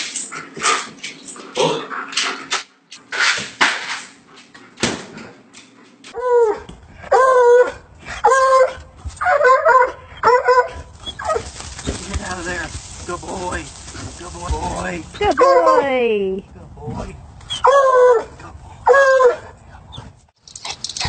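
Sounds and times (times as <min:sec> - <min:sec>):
dog whining and yelping: 0:06.2 - 0:11.5, 0:17.5 - 0:18.3, 0:18.9 - 0:20.1
rough noisy sounds: 0:11.0 - 0:15.4.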